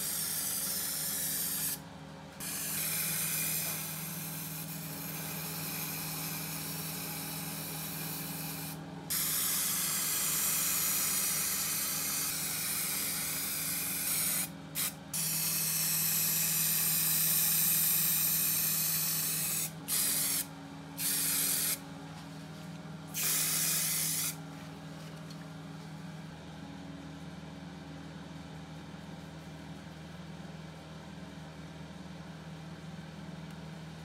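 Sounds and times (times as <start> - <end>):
spray paint hissing: 0.0 - 1.8, 2.4 - 21.8, 23.1 - 24.4.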